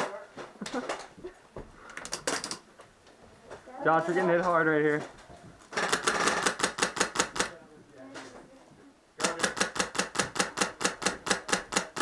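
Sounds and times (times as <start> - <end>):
airsoft gun firing bursts: 5.7 - 7.6, 9.2 - 12.0.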